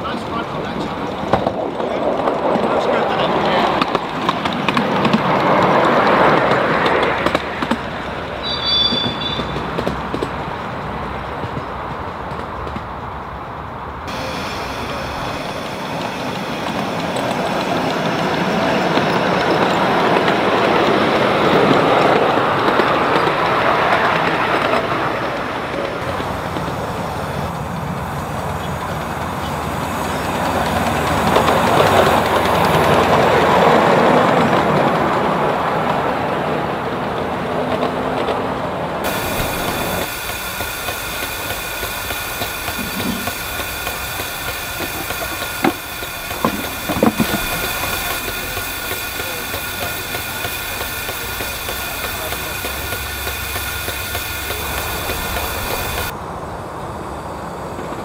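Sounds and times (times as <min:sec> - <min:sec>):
miniature steam train rumbling: 0:00.0 - 0:58.0
steam locomotive hissing: 0:00.0 - 0:58.0
sharp metallic clicks: 0:39.0 - 0:56.1.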